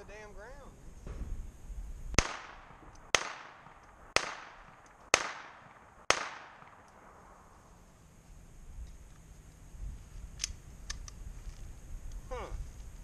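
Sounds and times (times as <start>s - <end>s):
pistol shots with echo: 2.2s - 7.5s.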